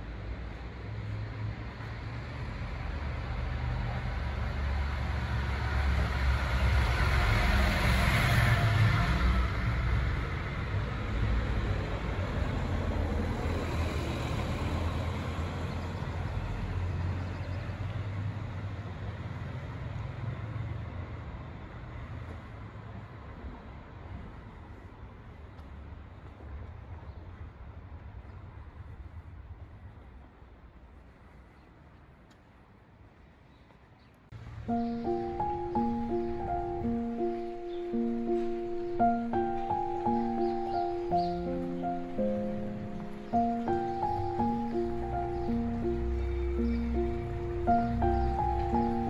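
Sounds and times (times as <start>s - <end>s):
vehicle driving past: 1.2s - 21.0s, 34.4s - 49.0s.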